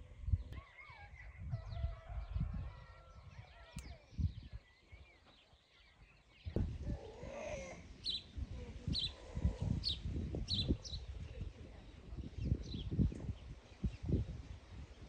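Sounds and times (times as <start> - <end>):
low animal call: 6.8 - 10.0
bird chirping: 8.0 - 11.1.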